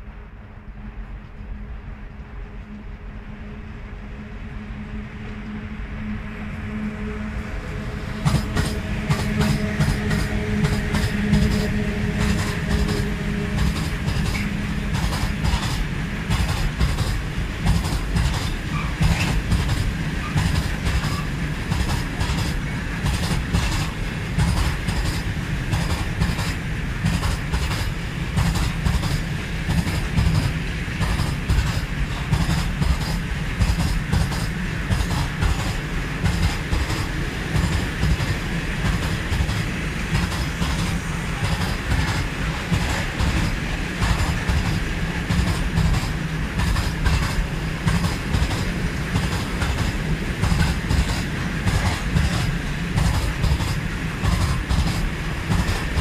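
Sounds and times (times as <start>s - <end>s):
train wheels rumbling on rails: 0.0s - 56.0s
wheels clickety-clack on rail joints: 5.0s - 56.0s.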